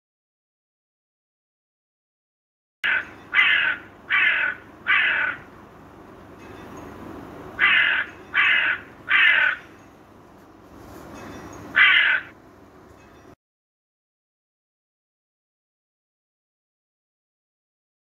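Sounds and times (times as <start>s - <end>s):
crow cawing: 2.8s - 5.5s, 7.6s - 9.7s, 11.8s - 12.4s.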